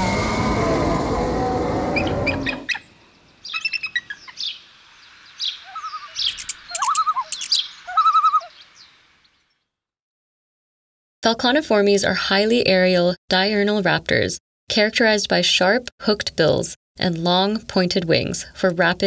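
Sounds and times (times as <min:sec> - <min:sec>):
intro sound effect: 0:00.0 - 0:02.8
falcon calling: 0:02.0 - 0:02.9, 0:03.5 - 0:04.5, 0:05.4 - 0:08.6.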